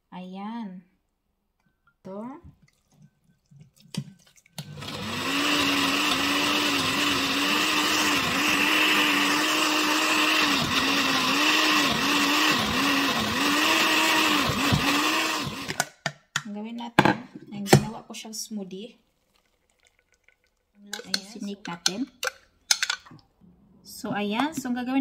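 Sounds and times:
blender motor running: 0:04.6 - 0:15.8.

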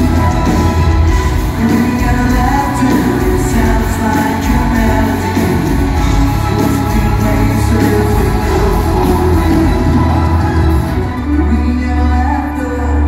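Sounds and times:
man singing: 0:00.0 - 0:13.0
rock band playing live: 0:00.0 - 0:13.0.

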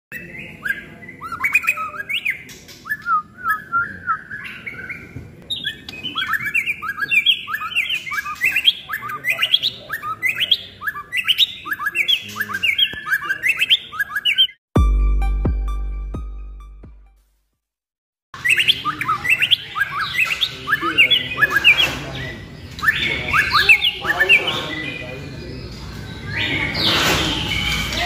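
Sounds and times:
bird singing whistled phrases: 0:00.1 - 0:14.6, 0:18.4 - 0:25.5.

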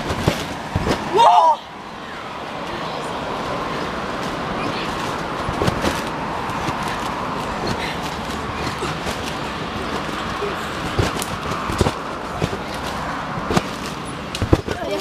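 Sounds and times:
thuds on trampoline mat: 0:00.0 - 0:01.2, 0:05.5 - 0:06.9, 0:10.8 - 0:15.0
steady rushing noise: 0:00.0 - 0:15.0.

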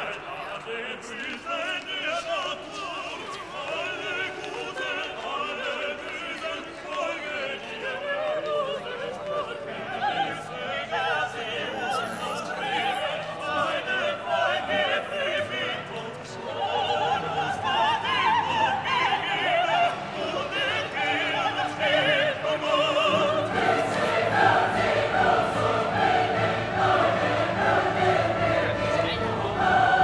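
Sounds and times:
operatic singing voices: 0:00.0 - 0:30.0
orchestral accompaniment: 0:17.0 - 0:30.0.

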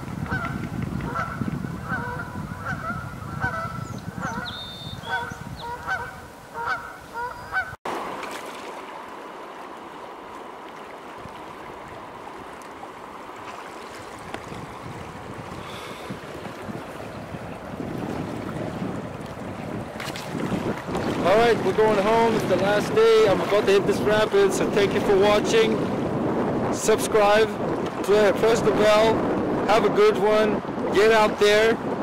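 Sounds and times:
low rumble of wind and water: 0:00.0 - 0:32.0
geese honking: 0:00.3 - 0:07.8
fast-flowing river rushing: 0:07.9 - 0:26.7.

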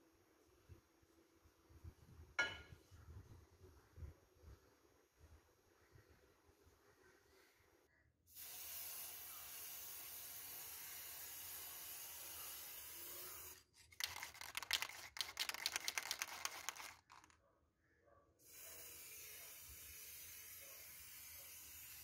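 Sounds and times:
spray paint can hissing: 0:13.9 - 0:17.3
irregular crackling and clicking: 0:13.9 - 0:17.4.

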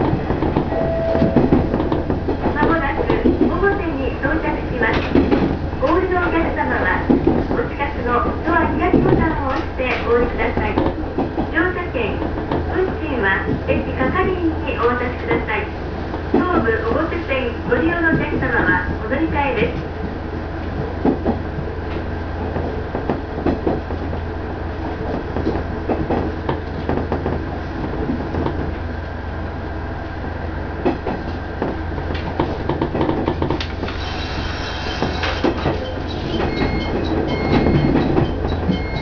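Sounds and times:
diesel railcar engine hum: 0:00.0 - 0:39.0
high ringing tones: 0:00.7 - 0:01.7, 0:36.4 - 0:39.0
wheels clicking over rail joints: 0:30.8 - 0:39.0.

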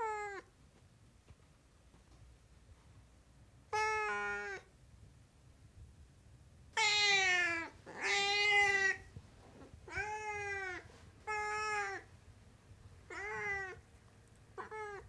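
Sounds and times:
cat meowing: 0:03.7 - 0:04.7, 0:06.8 - 0:09.1, 0:09.8 - 0:12.1, 0:13.1 - 0:13.8, 0:14.6 - 0:15.0.

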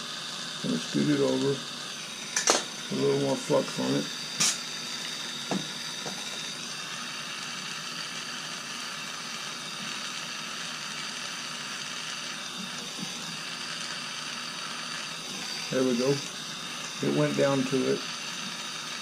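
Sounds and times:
gas torch flame hissing: 0:00.0 - 0:19.0
sharp click: 0:04.4 - 0:04.6.

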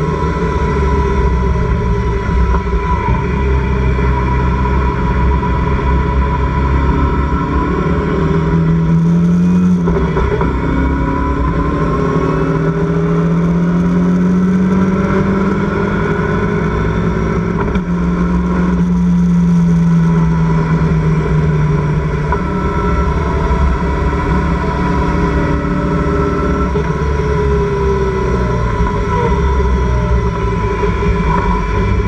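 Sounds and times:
racing car engine: 0:00.0 - 0:32.0.

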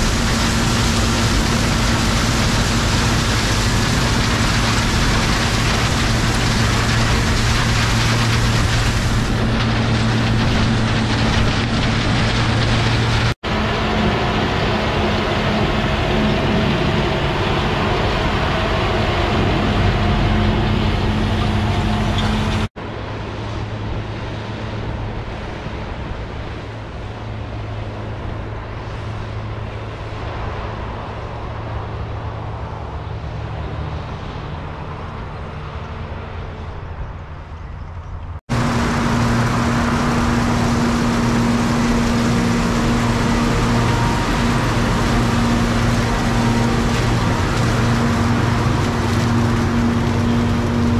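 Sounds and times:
threshing machinery rushing: 0:00.0 - 0:22.7, 0:38.5 - 0:50.9
combine diesel engine hum: 0:00.0 - 0:50.9.

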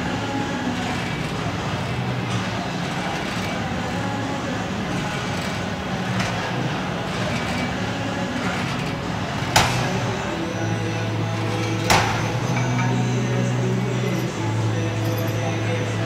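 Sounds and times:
low mechanical drone: 0:00.0 - 0:16.0.

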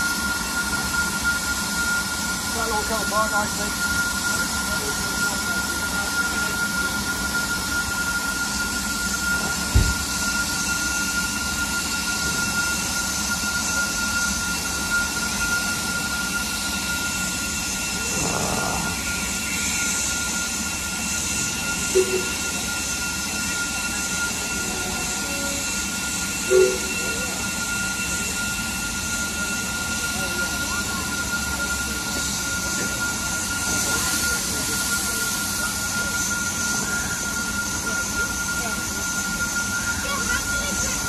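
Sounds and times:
steam locomotive hissing: 0:00.0 - 0:41.0
thud: 0:09.7 - 0:10.0.

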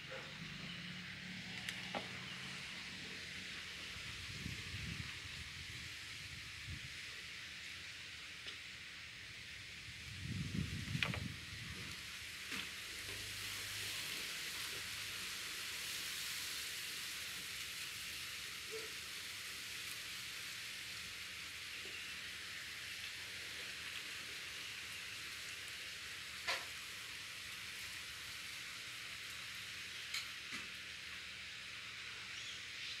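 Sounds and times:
faint outdoor hiss: 0:00.0 - 0:33.0.

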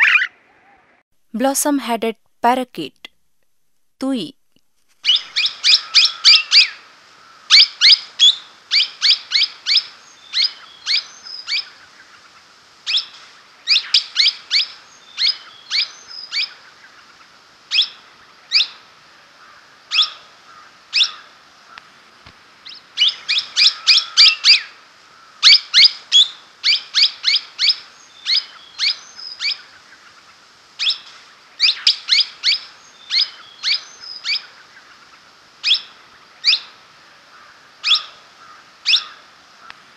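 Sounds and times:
parakeet calling: 0:00.0 - 0:00.4, 0:05.0 - 0:06.8, 0:07.5 - 0:11.7, 0:22.7 - 0:24.7.

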